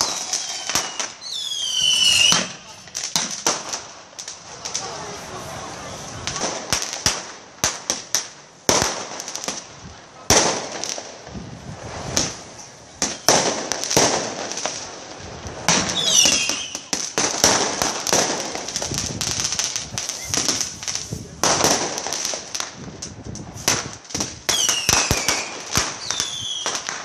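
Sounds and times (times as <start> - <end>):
high firework whistle: 0.0 - 2.9, 15.9 - 16.9, 20.0 - 20.8, 24.5 - 26.8
firecrackers banging: 0.0 - 27.0.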